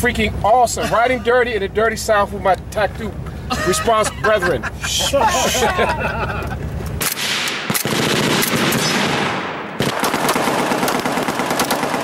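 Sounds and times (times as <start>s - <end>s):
rapid gunfire: 7.0s - 12.0s.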